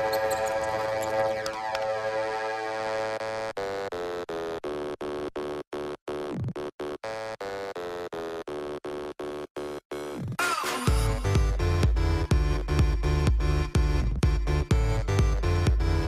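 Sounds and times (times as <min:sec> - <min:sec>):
stuttering synth chord pulses: 0:00.0 - 0:03.5
falling synth sweep: 0:00.6 - 0:03.2.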